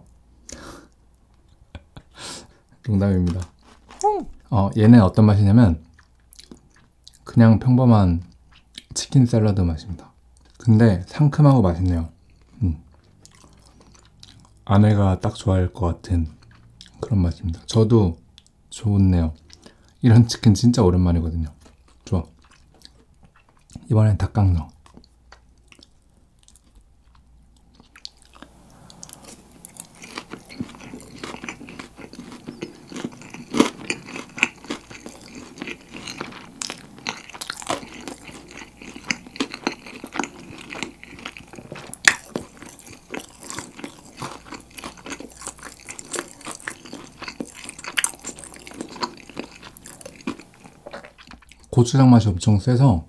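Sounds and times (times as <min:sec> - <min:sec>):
crunchy chewing of fried chicken: 0:12.2 - 0:14.7, 0:21.4 - 0:23.9, 0:24.6 - 0:51.8.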